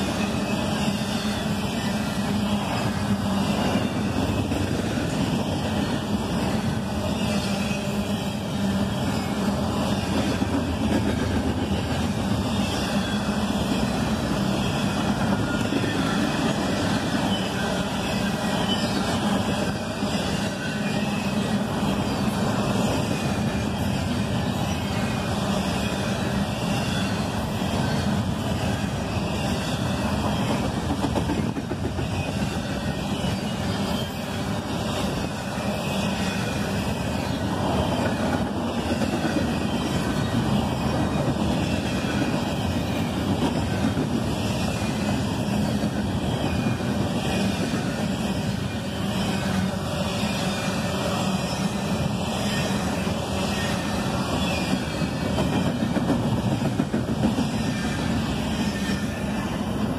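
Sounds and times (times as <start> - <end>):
freight train wheels rolling on rails: 0.0 - 59.9.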